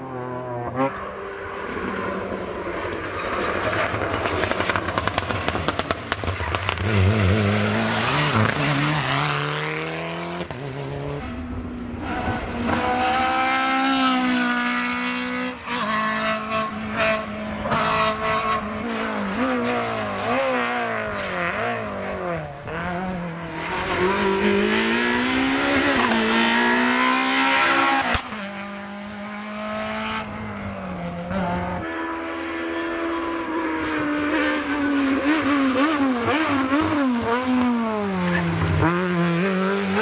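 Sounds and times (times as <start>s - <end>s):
rally car engine pulling away: 0.0s - 40.0s
rally car engine revving: 0.0s - 40.0s.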